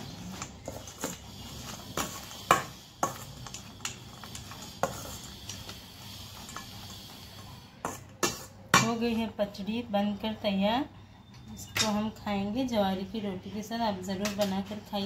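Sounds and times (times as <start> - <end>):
spoon stirring food in bowl: 0.0 - 5.8.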